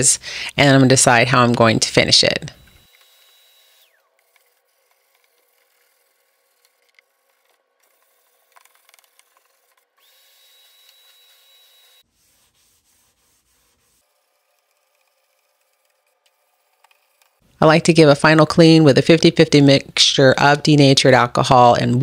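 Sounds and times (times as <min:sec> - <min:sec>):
sandpaper rubbing on wood: 0:04.2 - 0:08.5, 0:11.3 - 0:17.2.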